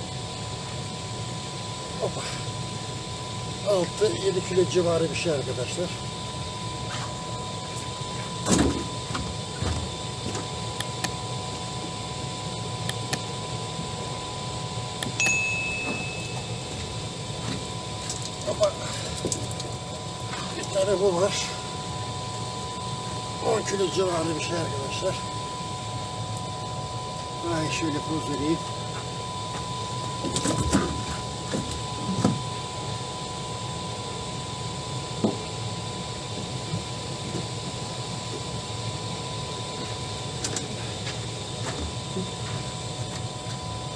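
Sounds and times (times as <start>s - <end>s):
bell chime: 15.2s - 16.8s.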